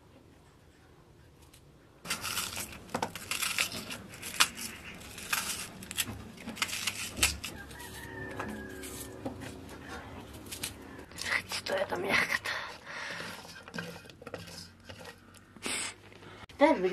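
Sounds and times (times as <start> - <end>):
knife cutting raw onion: 2.1 - 9.6.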